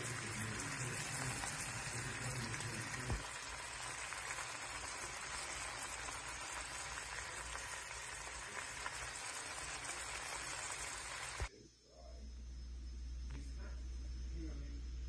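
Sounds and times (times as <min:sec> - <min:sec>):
gravy simmering in a pan: 0:00.0 - 0:11.5.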